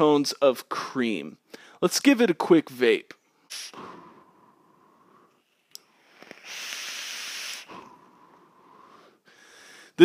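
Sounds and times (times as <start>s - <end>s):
breathy hiss of exhaling: 3.5s - 4.3s, 6.1s - 10.0s
vape click: 5.7s - 7.7s.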